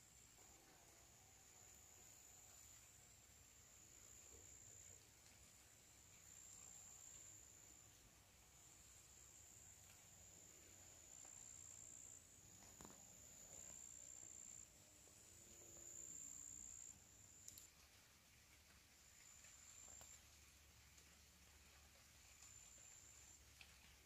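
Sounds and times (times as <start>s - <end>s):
high-pitched cricket trill: 10.5s - 17.7s
faint clicks: 15.5s - 24.0s.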